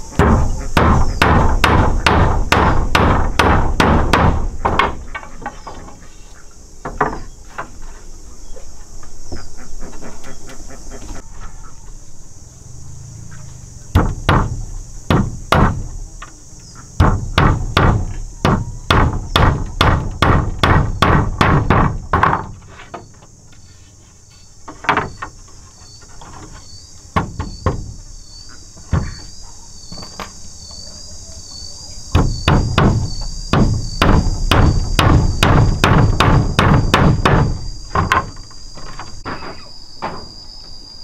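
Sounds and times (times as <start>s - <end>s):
insects chorus: 0.0s - 41.0s
hammer striking nails: 0.2s - 5.1s, 14.0s - 15.9s, 17.0s - 22.6s, 32.1s - 38.3s.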